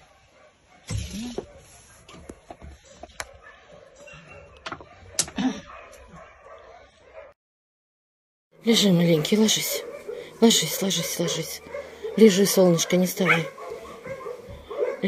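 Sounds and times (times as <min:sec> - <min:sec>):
dog whimper: 0:11.3 - 0:15.0.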